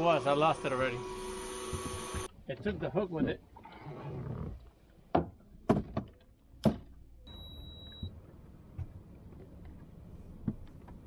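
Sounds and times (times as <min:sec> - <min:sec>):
high electronic beep: 0:07.3 - 0:08.1.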